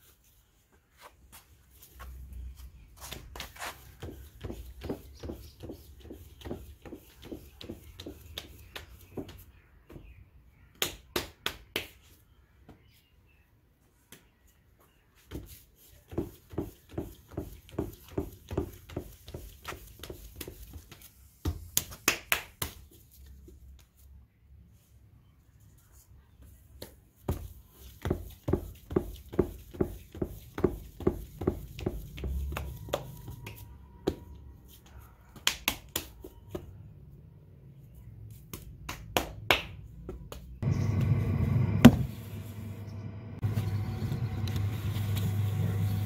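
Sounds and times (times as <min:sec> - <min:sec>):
hands slapping wet clay: 0:35.4 - 0:36.7, 0:38.4 - 0:40.6.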